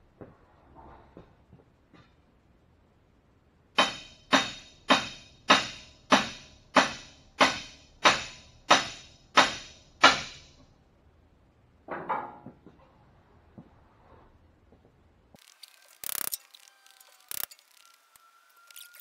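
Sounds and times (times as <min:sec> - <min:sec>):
hammer blows ringing: 0:03.8 - 0:10.6.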